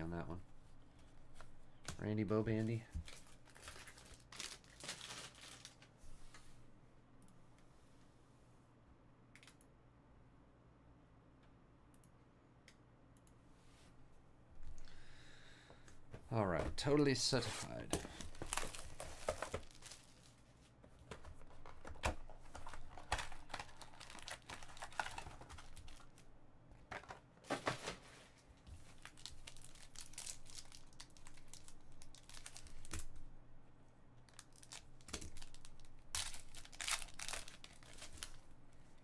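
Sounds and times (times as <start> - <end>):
foil wrappers tearing and crinkling: 3.1 - 5.8, 18.2 - 20.3, 22.6 - 26.2, 29.0 - 33.2, 34.3 - 38.4.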